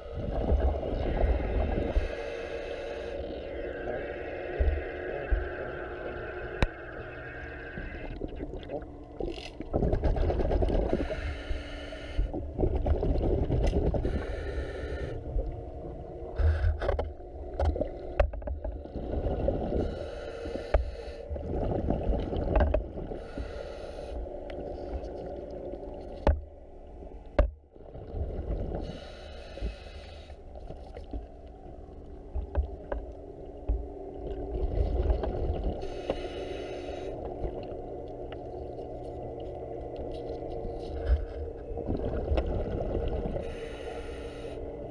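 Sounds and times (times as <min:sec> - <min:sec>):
underwater low rumble: 0:00.0 - 0:44.9
regulator bubbles rushing: 0:03.3 - 0:11.0, 0:12.4 - 0:14.1, 0:41.5 - 0:43.4.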